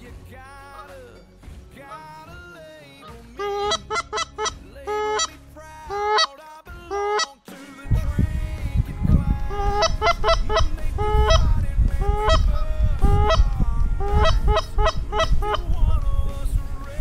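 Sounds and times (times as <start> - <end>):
geese honking: 3.0 - 7.4, 9.3 - 15.9
low rumble: 7.9 - 17.0.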